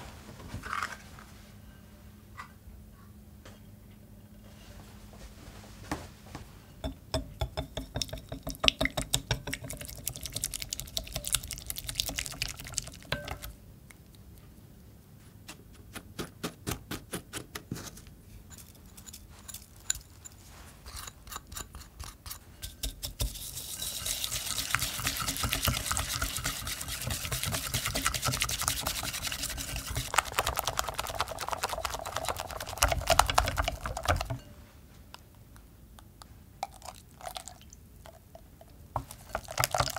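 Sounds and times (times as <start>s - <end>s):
whisk ticking against glass bowl: 6.8s - 13.5s, 22.7s - 34.4s.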